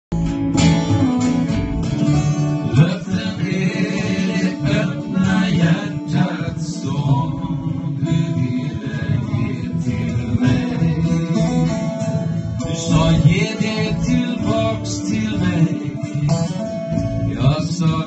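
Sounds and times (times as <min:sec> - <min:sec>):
acoustic guitars strumming: 0:00.1 - 0:18.0
double bass: 0:00.1 - 0:18.0.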